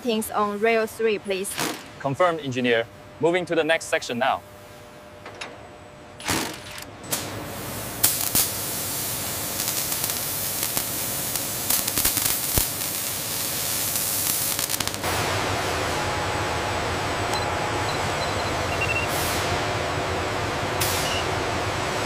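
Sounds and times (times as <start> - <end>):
sparks crackling: 7.2 - 15.4.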